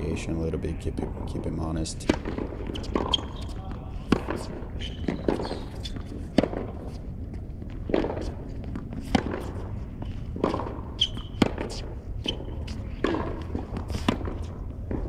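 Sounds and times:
tennis ball struck with rackets: 2.0s - 15.0s
shoe squeaks: 2.4s - 7.4s, 8.2s - 14.7s.

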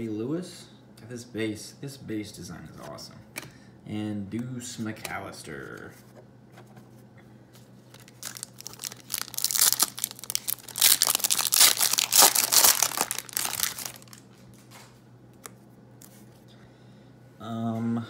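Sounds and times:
foil wrapper crinkling and tearing: 7.9s - 14.2s.

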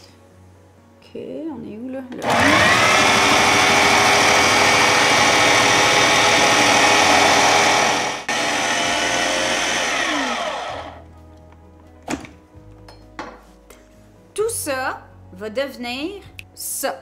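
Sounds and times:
food processor motor whine: 2.2s - 11.0s
zucchini grinding: 2.2s - 11.0s.

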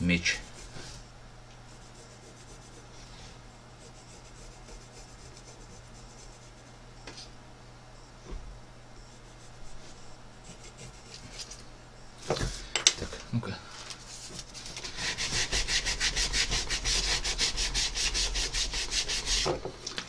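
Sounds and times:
steady low hum: 0.0s - 20.0s
pencil scratching on wood: 0.2s - 1.1s, 1.7s - 3.0s, 3.8s - 6.7s, 10.4s - 11.6s, 14.3s - 19.5s.

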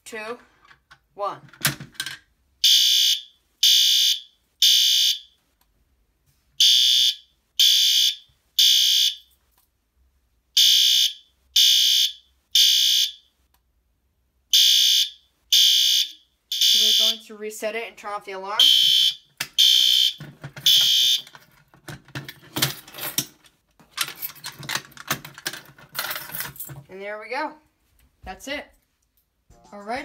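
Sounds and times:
fire alarm horn blasts: 2.6s - 5.2s, 6.6s - 9.2s, 10.6s - 13.2s, 14.5s - 17.2s, 18.6s - 21.3s.

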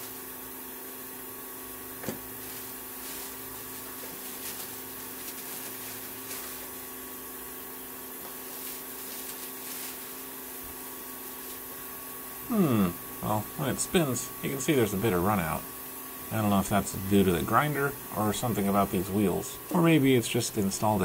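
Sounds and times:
steady background hum: 0.0s - 21.0s
plastic wrap rustling: 1.9s - 11.9s.

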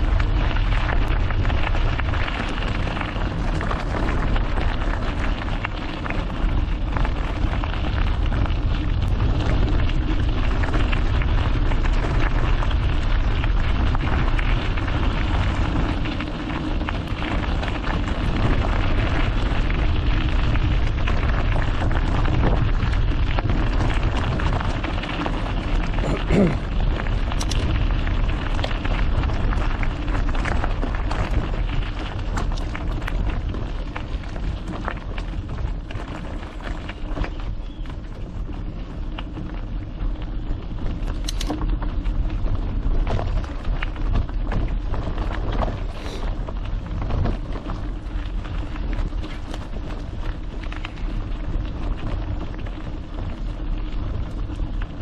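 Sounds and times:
bike rattling: 0.0s - 55.0s
bike tyres on gravel: 0.0s - 55.0s.

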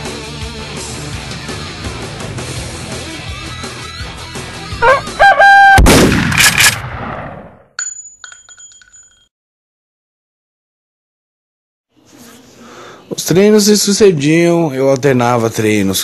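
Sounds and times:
heavy metal music: 0.0s - 5.4s
very loud crash: 5.8s - 7.5s.

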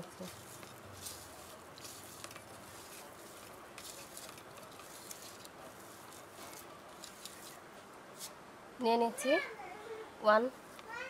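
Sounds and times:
hand squishing food mash: 0.0s - 8.3s
light scrapes in steel bowl: 0.2s - 7.6s.

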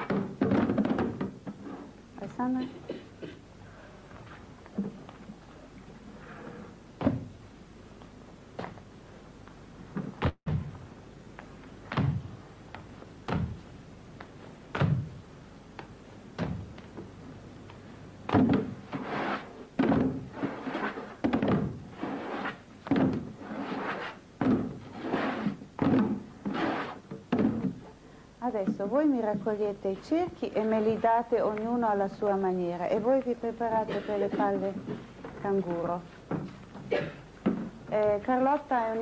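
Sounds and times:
hollow thuds on plastic jugs: 0.0s - 1.6s, 11.9s - 12.4s, 13.2s - 13.7s, 14.7s - 15.2s, 15.8s - 17.1s, 18.2s - 19.0s, 19.8s - 20.3s, 21.2s - 21.8s, 22.8s - 23.3s, 24.4s - 24.8s, 25.5s - 27.8s, 36.3s - 37.8s.

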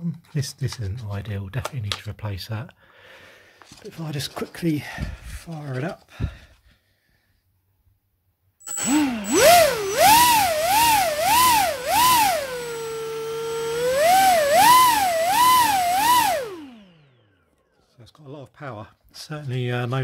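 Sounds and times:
model plane motor whining: 8.7s - 17.4s.

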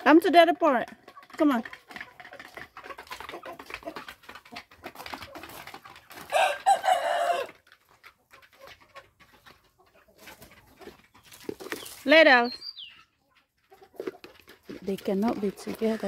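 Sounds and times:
rooster crowing: 6.3s - 7.5s.

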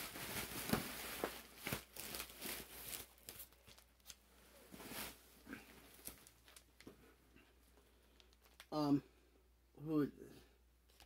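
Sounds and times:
bubble wrap and cardboard rustling: 0.0s - 7.0s.

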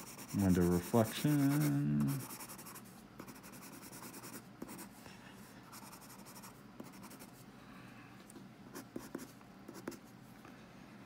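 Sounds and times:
pencil scratching on paper: 0.0s - 4.9s, 5.7s - 7.3s, 8.8s - 10.0s.

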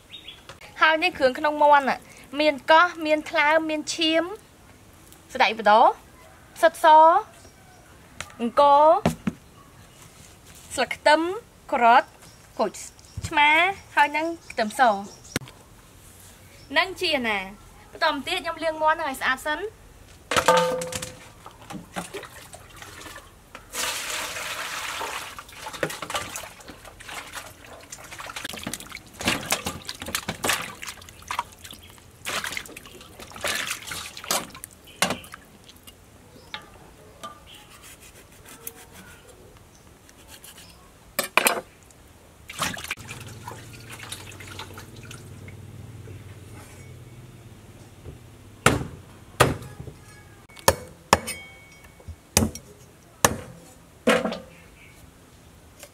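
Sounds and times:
water splashing in a metal basin: 20.4s - 36.0s, 42.5s - 45.7s.

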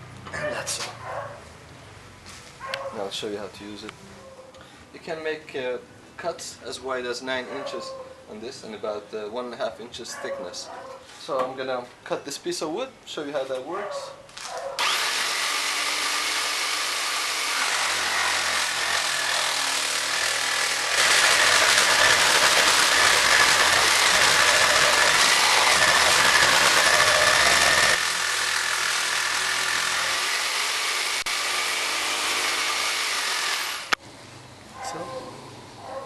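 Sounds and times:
jigsaw running: 14.8s - 34.0s
saw blade cutting wood: 14.8s - 34.0s.

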